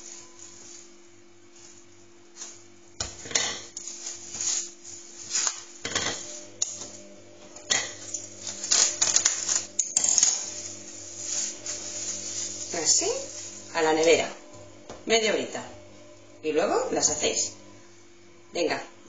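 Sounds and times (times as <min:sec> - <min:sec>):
cling film crinkling: 0:08.1 - 0:13.7.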